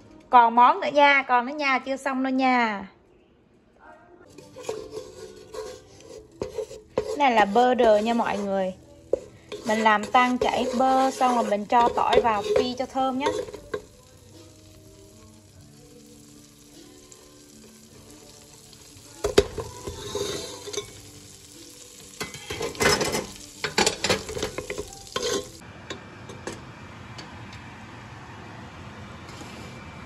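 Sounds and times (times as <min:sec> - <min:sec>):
wooden spatula scraping pot: 0:04.3 - 0:13.8, 0:19.8 - 0:21.0, 0:22.3 - 0:25.6
garlic sizzling in butter: 0:04.3 - 0:25.6.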